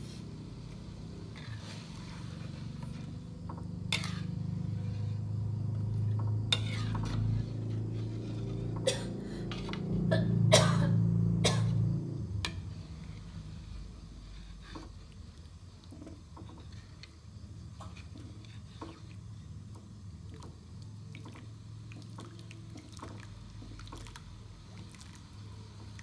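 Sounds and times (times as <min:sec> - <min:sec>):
steady low hum: 0:00.0 - 0:26.0
metal ladle scraping a wok: 0:01.3 - 0:02.7, 0:03.9 - 0:05.2, 0:06.5 - 0:08.8.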